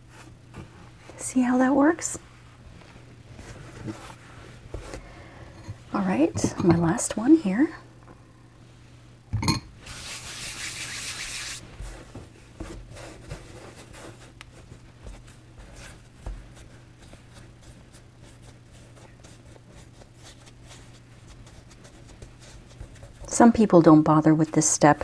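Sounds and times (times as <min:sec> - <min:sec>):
hands rubbing flour on mat: 0:02.2 - 0:05.0, 0:09.9 - 0:23.6
soft pats of dough: 0:11.7 - 0:23.3.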